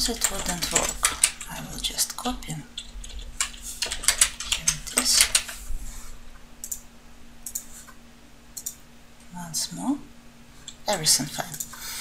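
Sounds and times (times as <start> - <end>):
computer keyboard keystrokes: 0.0 - 1.5, 2.2 - 5.6, 7.4 - 7.7, 8.6 - 8.8
mouse clicks: 7.4 - 7.7.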